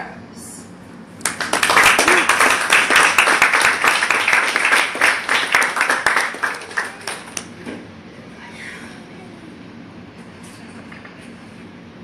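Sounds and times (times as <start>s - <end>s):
audience applauding: 1.2s - 7.6s.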